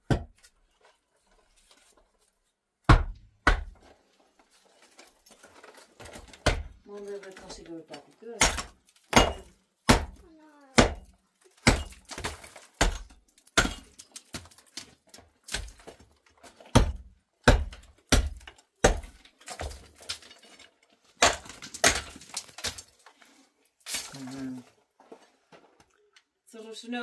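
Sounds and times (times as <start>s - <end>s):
hammer chipping concrete block: 0.0s - 0.4s, 2.8s - 3.8s, 6.2s - 6.8s, 8.4s - 16.0s, 16.6s - 20.2s, 21.2s - 22.8s.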